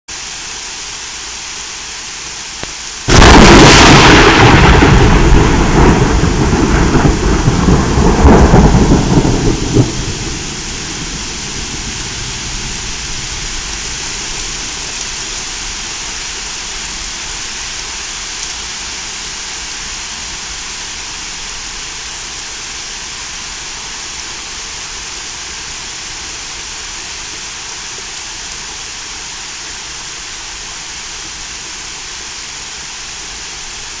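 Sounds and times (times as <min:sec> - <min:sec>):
steady rain: 0:00.1 - 0:34.0
thunder rumbling: 0:03.1 - 0:15.3.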